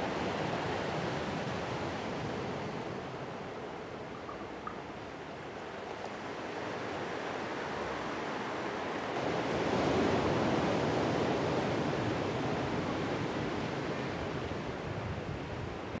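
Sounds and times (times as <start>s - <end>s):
sea surf rushing: 0.0s - 16.0s.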